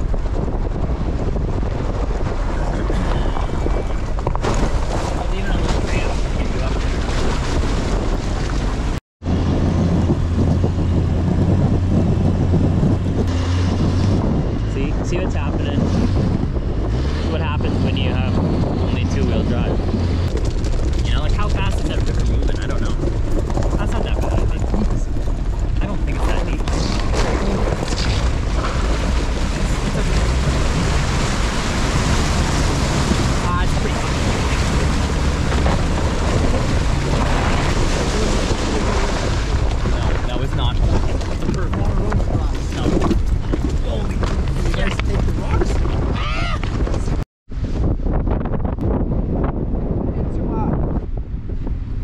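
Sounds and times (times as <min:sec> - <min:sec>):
car engine droning: 0:00.0 - 0:45.8
wind noise: 0:00.0 - 0:52.0
splashing water: 0:04.4 - 0:09.0, 0:27.0 - 0:43.0.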